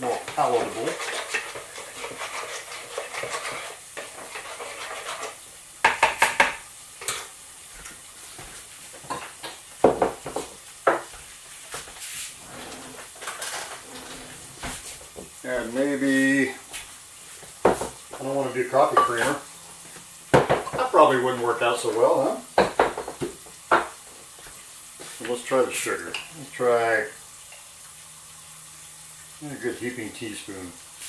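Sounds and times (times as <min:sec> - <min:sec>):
spoon stirring batter: 0:00.0 - 0:05.4
food sizzling in deep fryer: 0:00.0 - 0:31.0
dishes and utensils clattering: 0:00.2 - 0:07.3, 0:12.5 - 0:14.5.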